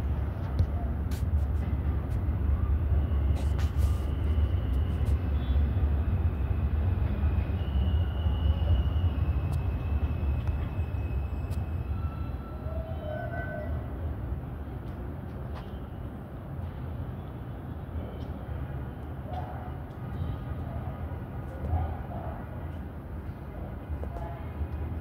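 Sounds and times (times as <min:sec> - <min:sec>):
subway train rumble: 0:00.0 - 0:25.0
faint high whine: 0:02.5 - 0:12.6.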